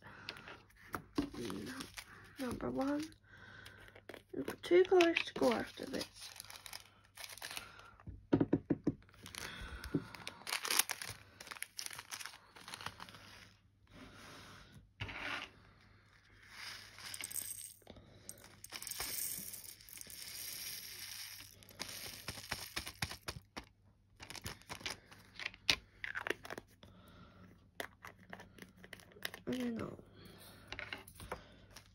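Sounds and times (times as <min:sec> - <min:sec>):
plastic packets crinkling and tearing: 0:01.2 - 0:08.0, 0:09.1 - 0:13.6, 0:21.3 - 0:25.3.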